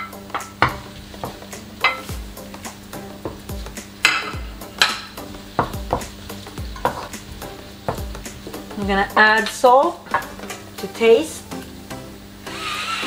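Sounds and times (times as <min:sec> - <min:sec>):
onion sizzling in oil: 0:00.0 - 0:13.0
wooden spoon scraping in wok: 0:06.3 - 0:08.8.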